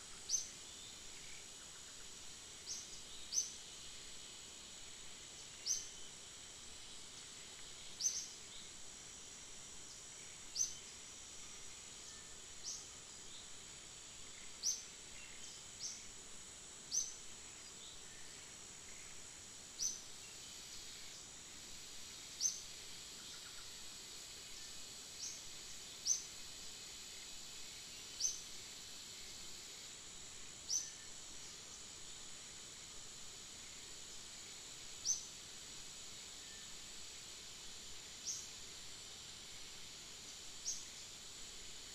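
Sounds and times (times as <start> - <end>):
high insect hum: 0.0 - 41.9.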